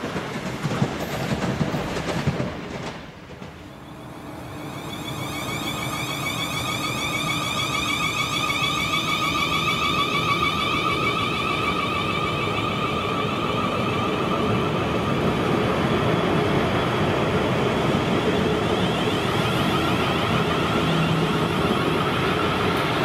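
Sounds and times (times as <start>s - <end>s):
electric train motors whining: 4.0s - 16.8s, 17.5s - 23.0s.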